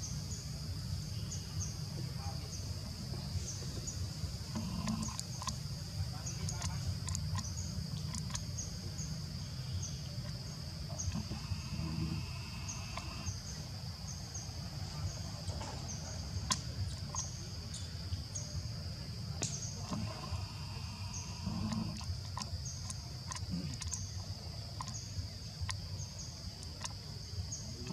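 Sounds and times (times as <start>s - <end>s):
insects droning and chirping: 0.0s - 27.9s
sharp clicks: 6.5s - 8.5s, 21.7s - 25.0s.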